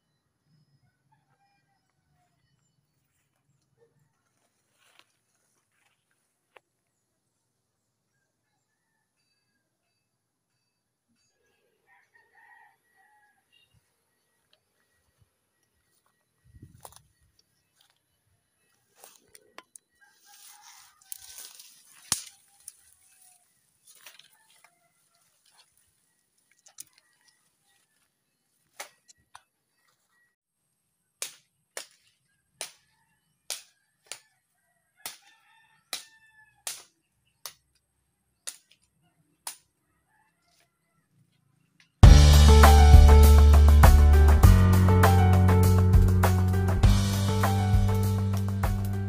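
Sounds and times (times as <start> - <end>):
rooster crowing: 0.8 - 2.4, 11.8 - 13.6, 20.0 - 21.6, 34.7 - 36.6
distant chickens clucking: 19.0 - 25.8
blade chopping woody stems: 31.2 - 32.9.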